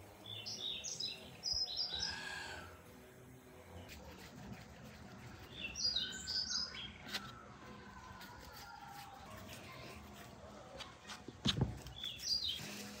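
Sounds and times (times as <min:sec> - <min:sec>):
songbird chirping: 0:00.0 - 0:02.7, 0:05.2 - 0:09.6, 0:10.8 - 0:12.9
faint garden background noise: 0:00.0 - 0:13.0.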